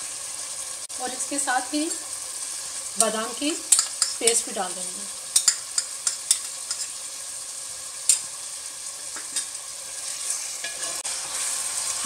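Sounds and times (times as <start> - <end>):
chicken sizzling in hot oil: 0.0 - 12.0
spoon stirring: 10.1 - 11.1.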